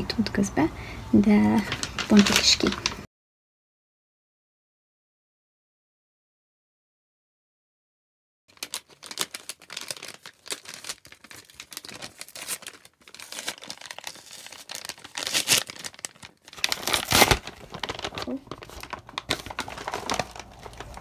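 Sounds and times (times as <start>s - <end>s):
paper bag crinkling and tearing: 1.6s - 3.1s, 8.5s - 21.0s.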